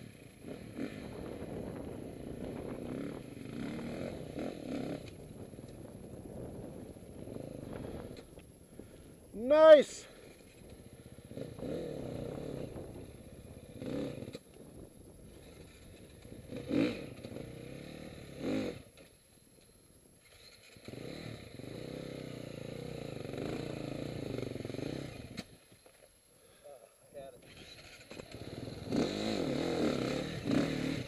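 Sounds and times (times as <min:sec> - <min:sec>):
dirt bike engine revving: 0:00.0 - 0:05.2, 0:10.8 - 0:14.4, 0:15.3 - 0:19.0, 0:20.2 - 0:25.6, 0:27.4 - 0:31.0.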